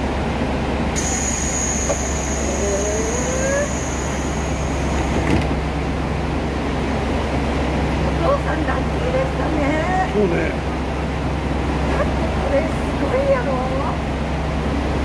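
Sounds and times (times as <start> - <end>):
idling train hum: 0.0 - 15.0
high tone with hiss: 1.0 - 5.3
short rising squeak: 1.0 - 5.4.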